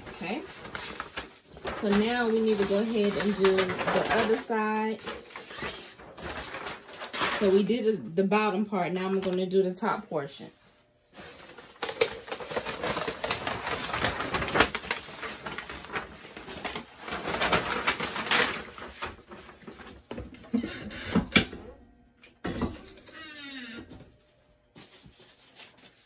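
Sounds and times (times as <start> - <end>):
paper and fabric rustling: 0.0 - 8.0, 9.0 - 20.3, 24.7 - 26.0.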